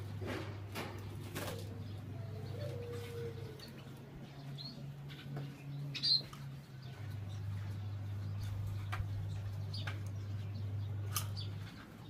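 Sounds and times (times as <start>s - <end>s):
steady low hum: 0.0s - 12.0s
dove cooing: 1.1s - 6.3s
small bird chirping: 1.9s - 12.0s.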